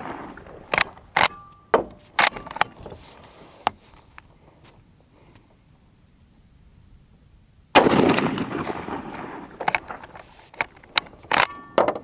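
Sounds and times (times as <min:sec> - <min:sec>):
rifle shot echoing: 0:07.8 - 0:10.0.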